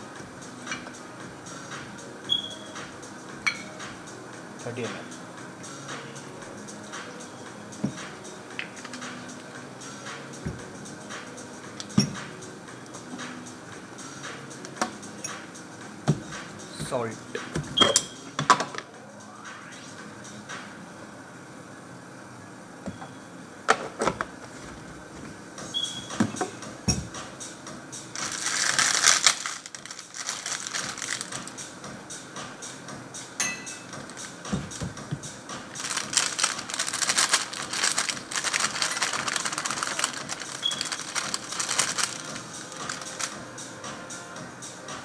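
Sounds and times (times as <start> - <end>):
popcorn rattling into glass: 28.2 - 31.4, 35.8 - 43.3.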